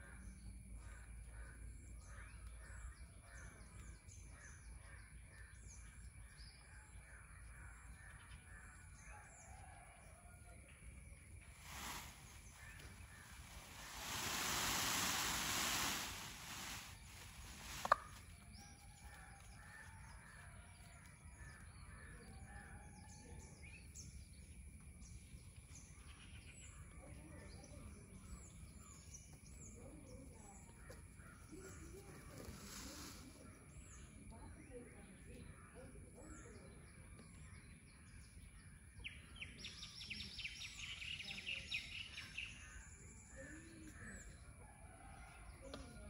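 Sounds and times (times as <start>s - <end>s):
rustling hiss: 11.4s - 18.8s, 31.7s - 34.0s.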